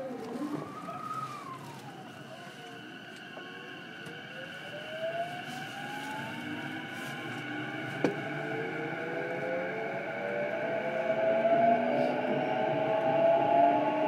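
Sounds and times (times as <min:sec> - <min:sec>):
electric train motor whining: 0:00.0 - 0:14.0
wheels running on track: 0:00.0 - 0:14.0.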